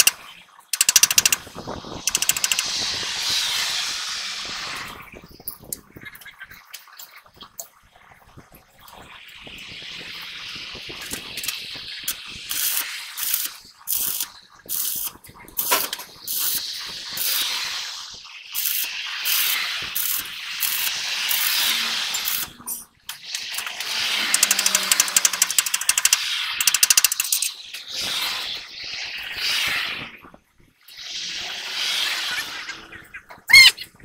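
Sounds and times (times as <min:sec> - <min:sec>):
welding arc crackling: 0:00.8 - 0:05.0, 0:11.0 - 0:27.7.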